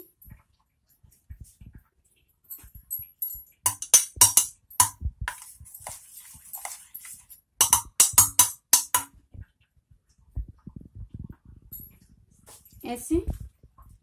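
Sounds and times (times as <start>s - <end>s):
spoon clinking against steel pot: 3.7s - 6.0s, 6.6s - 9.2s
spoon scraping pot: 3.7s - 9.1s.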